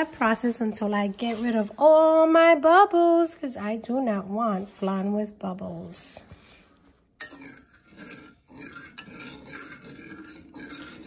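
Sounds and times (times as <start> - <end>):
spoon scraping metal saucepan: 7.2 - 11.0.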